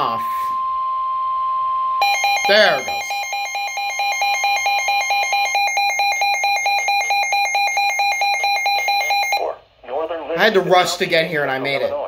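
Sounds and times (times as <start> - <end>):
rapid pulsing electronic beep alarm: 0.0 - 9.4.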